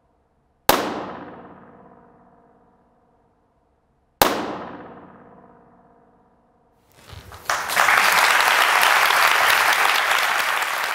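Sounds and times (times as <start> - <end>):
audience applause: 7.0 - 10.9.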